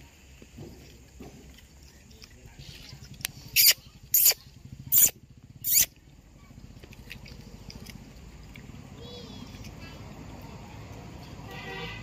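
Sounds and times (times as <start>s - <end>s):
monkeys squealing: 3.5s - 6.0s.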